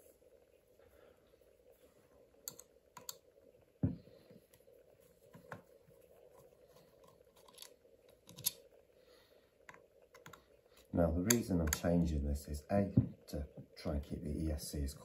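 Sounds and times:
faint steady hum: 0:00.0 - 0:15.0
small plastic parts clicking: 0:07.3 - 0:08.6.

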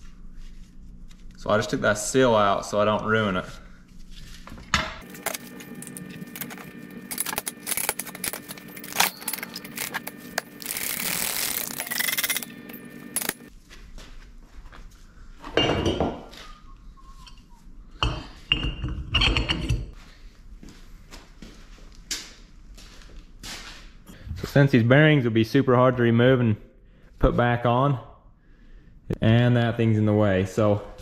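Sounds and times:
steady hum: 0:00.0 - 0:13.5
metal parts clinking and clanking: 0:05.1 - 0:13.5.

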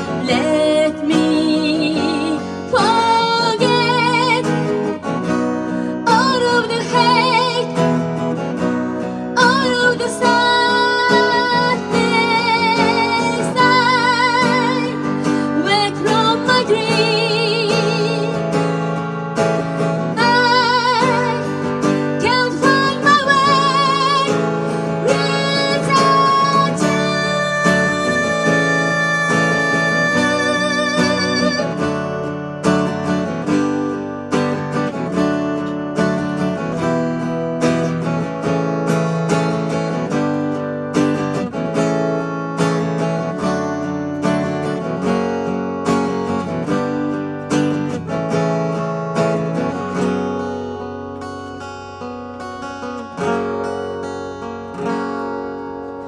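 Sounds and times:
woman singing with vibrato: 0:00.0 - 0:05.2, 0:05.9 - 0:08.2, 0:09.4 - 0:18.8, 0:20.0 - 0:32.2
acoustic guitar: 0:00.0 - 0:56.0.

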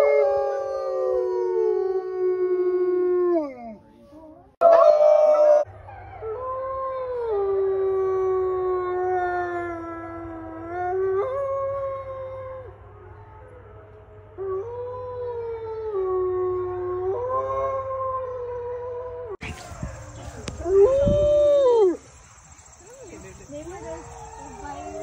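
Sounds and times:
wolfdog howling: 0:14.4 - 0:22.0, 0:23.8 - 0:25.0.

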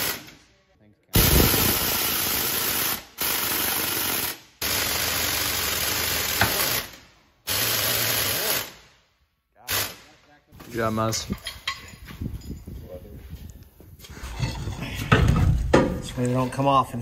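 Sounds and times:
air impact wrench hammering: 0:00.0 - 0:00.4, 0:01.2 - 0:08.8.

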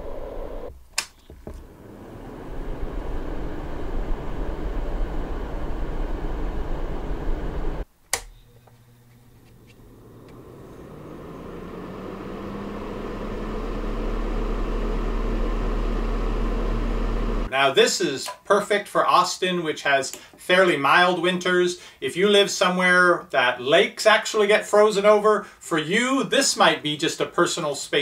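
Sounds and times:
heater fan low hum: 0:01.4 - 0:17.5
space heater fan rushing air: 0:01.5 - 0:07.8, 0:08.8 - 0:17.5
heater switch click: 0:08.1 - 0:10.4.

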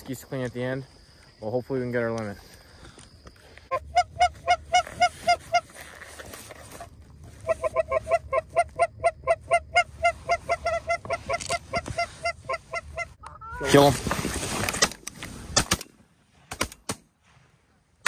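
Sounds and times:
goose honking: 0:03.7 - 0:05.8, 0:07.4 - 0:13.8.

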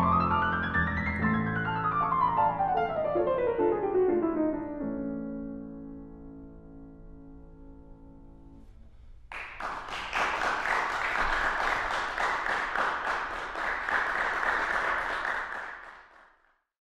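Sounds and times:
audience applauding: 0:09.3 - 0:16.4.

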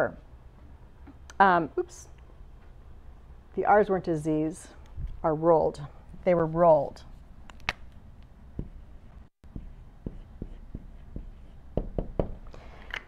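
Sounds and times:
marker writing on whiteboard: 0:09.4 - 0:12.3.

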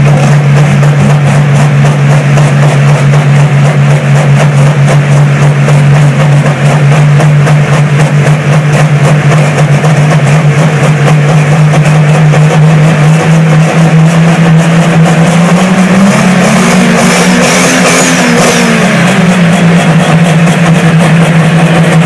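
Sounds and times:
big diesel engines running: 0:00.0 - 0:22.0
engine revving: 0:00.0 - 0:22.0.

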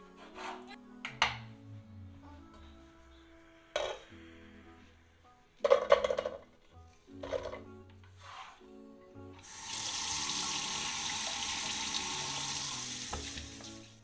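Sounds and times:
tap water pouring: 0:09.4 - 0:13.9.

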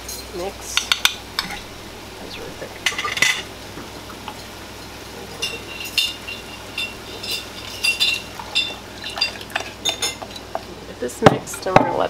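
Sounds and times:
spoon clinking against glass cup: 0:05.4 - 0:10.2.

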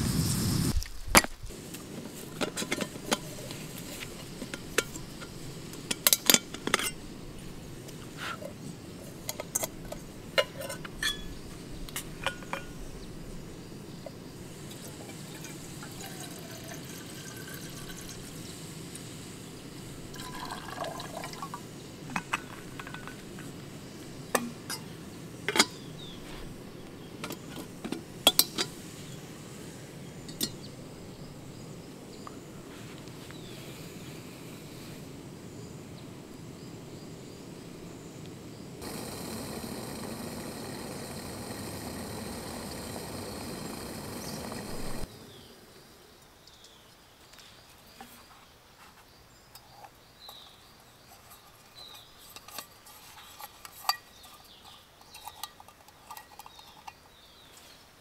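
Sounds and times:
low background noise: 0:00.0 - 0:58.0
liquid pouring and sloshing: 0:20.1 - 0:21.6.

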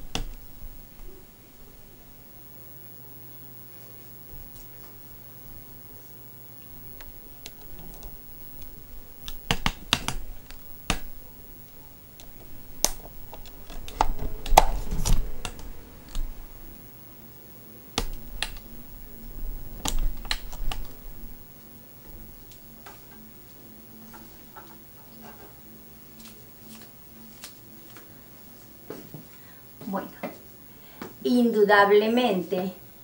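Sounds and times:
low rumbling bumps: 0:06.8 - 0:16.8
handling clicks and taps: 0:07.0 - 0:11.3.

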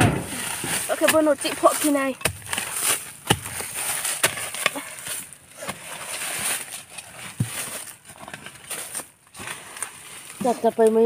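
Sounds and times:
digging tool striking soil: 0:00.0 - 0:04.8
loose dirt scattering: 0:00.0 - 0:10.9.

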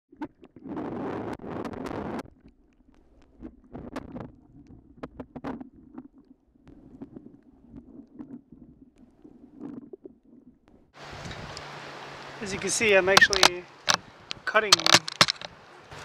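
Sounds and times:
underwater rumble of moving water: 0:00.1 - 0:14.7
sharp clicks and crackles: 0:13.2 - 0:15.6.

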